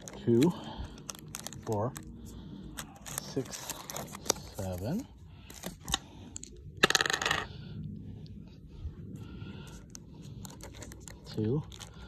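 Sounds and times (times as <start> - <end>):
foil card packs rattling: 0.0 - 2.1, 2.7 - 5.8, 10.4 - 12.0.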